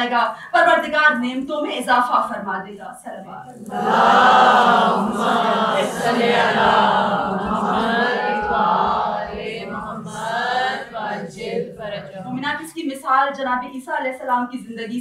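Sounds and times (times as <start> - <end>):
congregation reciting in unison: 3.6 - 12.4.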